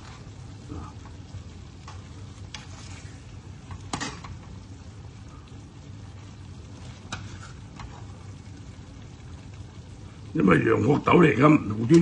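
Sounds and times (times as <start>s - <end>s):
steady low hum: 0.0s - 12.0s
metal spoon scraping a pan: 7.0s - 8.1s.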